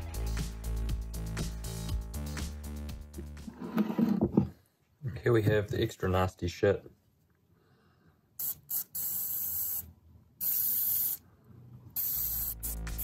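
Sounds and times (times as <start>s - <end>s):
aerosol spray can hissing: 8.4s - 11.2s, 12.0s - 13.0s.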